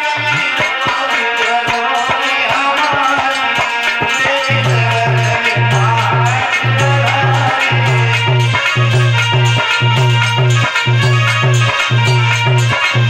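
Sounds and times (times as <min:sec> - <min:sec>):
hand drum beat: 0:00.0 - 0:13.0
instrumental folk dance melody: 0:00.0 - 0:13.0
deep repeated low notes: 0:04.5 - 0:13.0.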